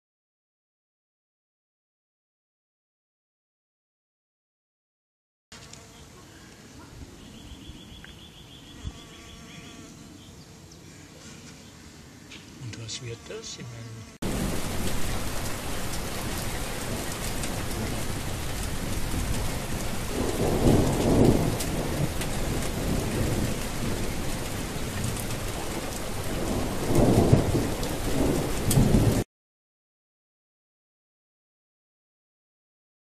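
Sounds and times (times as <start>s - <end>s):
heavy rain: 14.2s - 29.2s
low thunder rolls: 14.2s - 29.2s.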